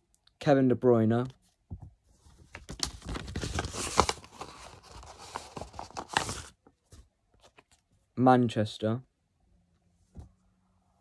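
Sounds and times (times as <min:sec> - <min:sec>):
paper stickers rustling: 0:02.5 - 0:06.5.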